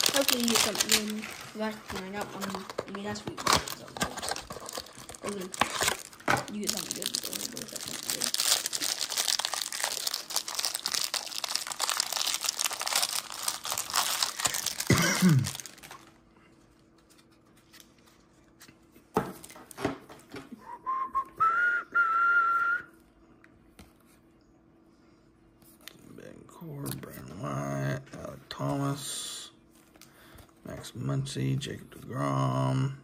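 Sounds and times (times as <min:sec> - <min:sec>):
plastic wrapper crinkling and tearing: 0:00.0 - 0:16.2
person whistling held note: 0:20.6 - 0:23.0.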